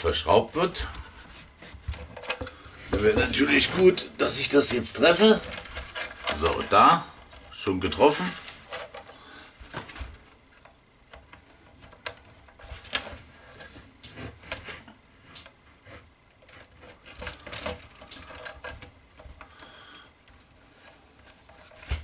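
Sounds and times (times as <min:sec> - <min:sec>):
wooden boards scraping and knocking: 0:00.2 - 0:09.1.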